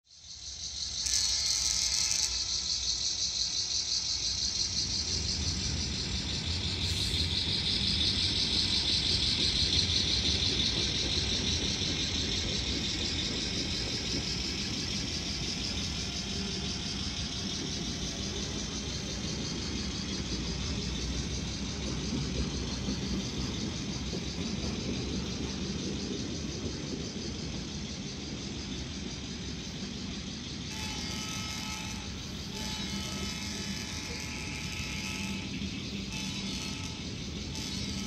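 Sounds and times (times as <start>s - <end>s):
faint high whine: 0.2s - 10.8s, 13.5s - 22.9s, 27.7s - 38.0s
model train motor whirring: 0.4s - 21.4s, 30.6s - 38.0s.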